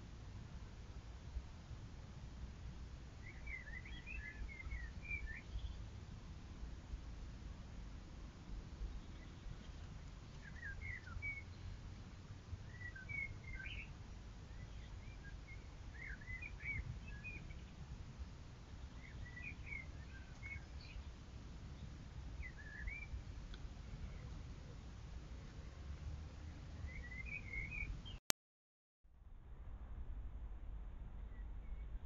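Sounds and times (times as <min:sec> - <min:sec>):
songbird warbling: 0:09.0 - 0:11.8, 0:12.7 - 0:13.9, 0:14.6 - 0:17.7, 0:26.8 - 0:28.2
low microphone rumble: 0:29.1 - 0:32.0.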